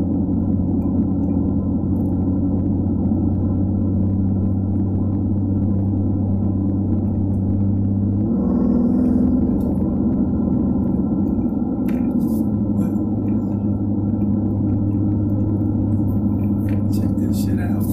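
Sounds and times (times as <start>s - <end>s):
car engine drone in cabin: 0.0s - 17.9s
tyre and road noise: 4.4s - 17.9s.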